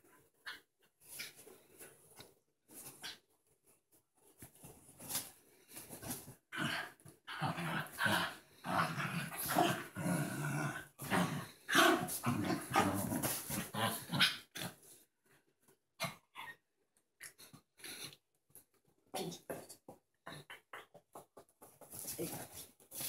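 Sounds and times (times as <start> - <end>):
small dogs growling: 6.5 - 14.9.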